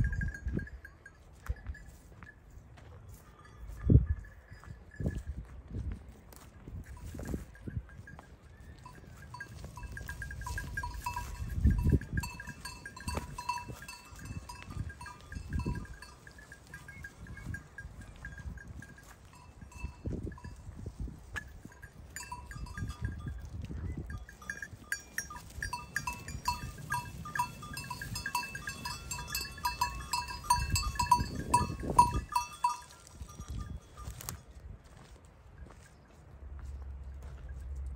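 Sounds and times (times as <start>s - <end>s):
rapid high tinkling: 0.0s - 2.0s, 8.8s - 20.7s, 21.6s - 34.2s.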